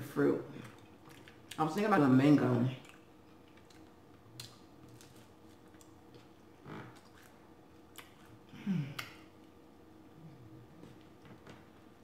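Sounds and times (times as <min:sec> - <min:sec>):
soft chewing with lip clicks: 0:00.6 - 0:01.6, 0:02.7 - 0:11.7
person humming mmm: 0:08.5 - 0:09.2.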